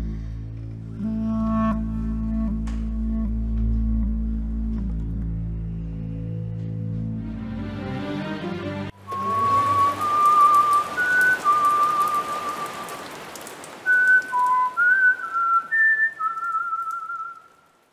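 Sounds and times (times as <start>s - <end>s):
whistled tune: 9.0s - 17.6s
steady hiss: 9.0s - 17.9s.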